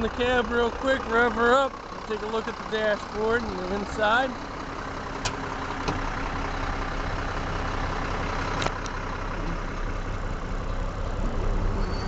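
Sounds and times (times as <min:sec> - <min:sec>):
diesel truck engine idling: 0:00.0 - 0:12.0.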